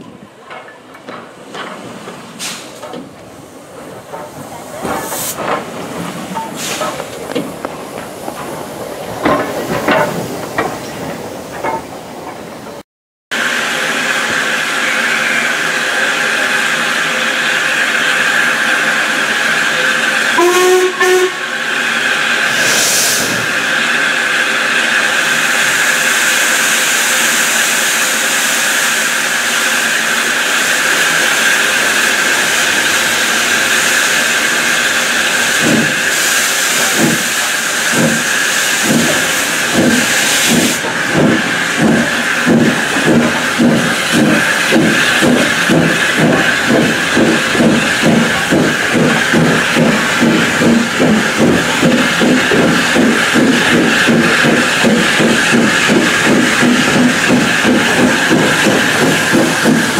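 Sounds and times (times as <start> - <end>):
steam locomotive moving: 0.0 - 59.9
steam hissing: 1.8 - 12.5, 13.4 - 59.9
steam whistle blast: 20.4 - 21.6.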